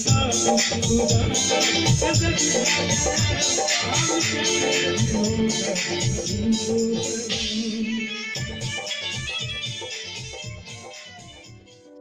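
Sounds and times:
shaker percussion: 0:00.0 - 0:07.7, 0:08.4 - 0:11.7
live band music: 0:00.0 - 0:11.8
person singing: 0:00.0 - 0:12.0.

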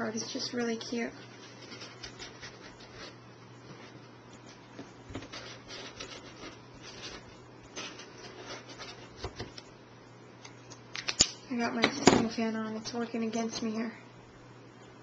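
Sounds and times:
paper scratching and rubbing: 0:01.3 - 0:04.0, 0:05.1 - 0:09.5.

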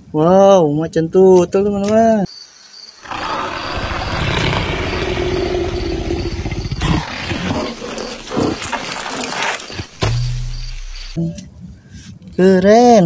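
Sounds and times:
cartoon leopard growling: 0:03.0 - 0:09.2
low thud: 0:09.9 - 0:11.1.

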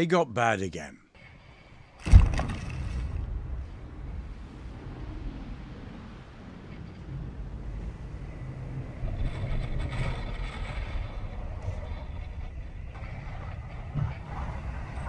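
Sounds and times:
strong wind buffeting microphone: 0:01.2 - 0:15.0
waves rushing along a hull: 0:01.4 - 0:15.0
breaking water and spray: 0:02.0 - 0:03.4.

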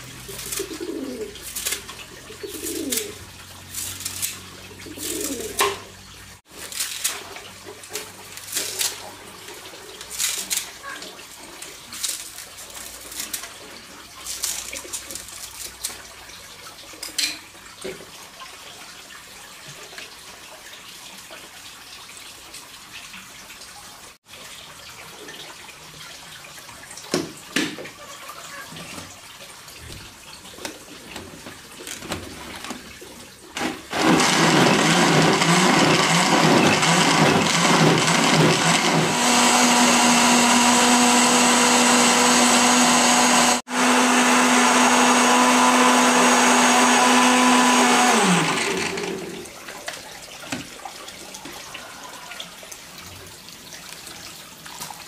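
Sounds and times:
water splashing and sloshing: 0:00.0 - 0:34.1, 0:48.2 - 0:55.0.

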